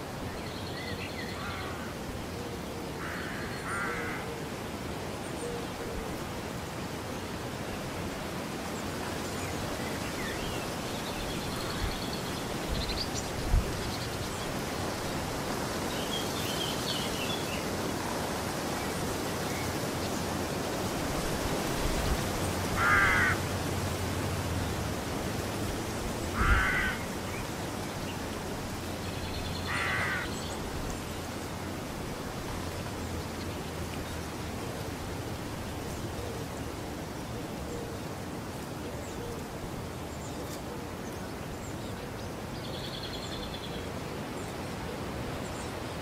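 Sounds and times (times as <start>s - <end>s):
crow cawing: 1.4s - 1.9s, 3.0s - 4.3s, 22.8s - 23.4s, 26.4s - 27.1s, 29.7s - 30.3s.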